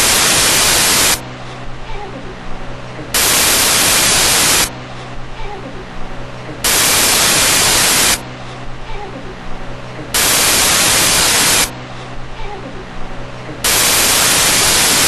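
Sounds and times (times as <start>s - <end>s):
digital static bursts: 0.0s - 1.2s, 3.1s - 4.7s, 6.6s - 8.2s, 10.1s - 11.7s, 13.6s - 15.0s
low mains hum: 0.0s - 15.0s
faint indistinct voice: 1.4s - 3.2s, 4.9s - 6.7s, 8.4s - 10.2s, 11.9s - 13.7s.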